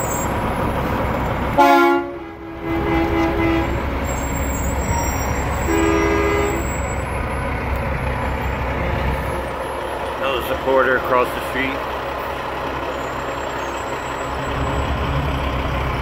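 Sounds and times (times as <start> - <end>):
diesel trucks rumbling: 0.0 - 16.0
truck air horn blasts: 1.6 - 4.2, 4.8 - 6.9.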